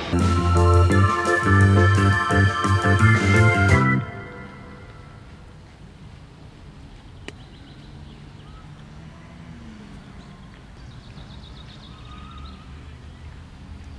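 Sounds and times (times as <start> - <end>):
birds chirping: 6.9 - 8.8, 9.9 - 13.9.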